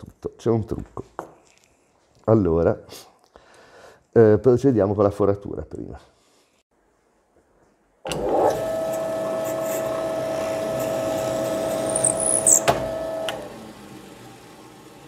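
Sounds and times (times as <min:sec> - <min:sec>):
electric drill boring wood: 0:08.1 - 0:15.0.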